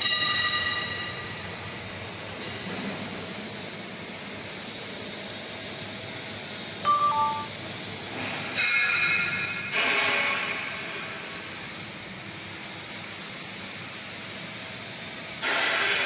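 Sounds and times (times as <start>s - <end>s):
steady machine hum: 3.1s - 8.4s
two-note falling chime: 6.9s - 7.5s.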